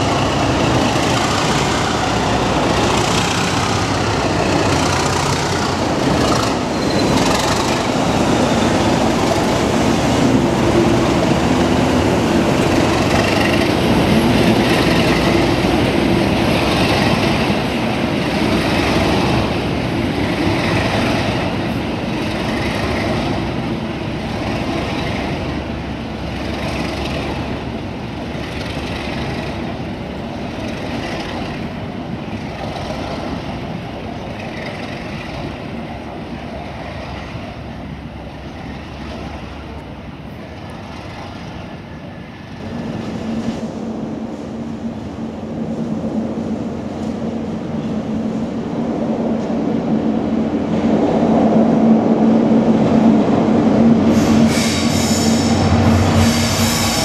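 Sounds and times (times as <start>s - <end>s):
train wheels clattering over rail joints: 0.0s - 35.9s
diesel locomotive engines running: 0.0s - 57.0s.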